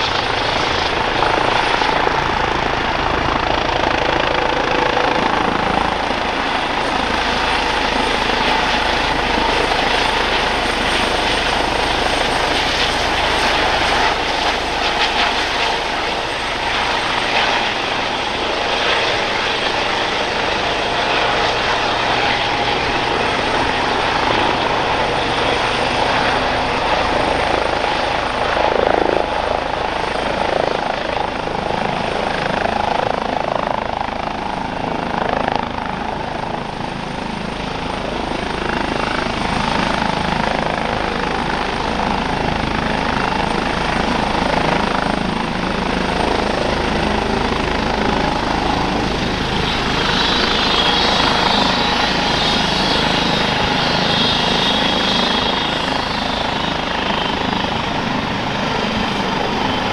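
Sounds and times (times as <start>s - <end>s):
helicopter rotor noise: 0.0s - 59.9s
high turbine whine: 0.0s - 59.9s.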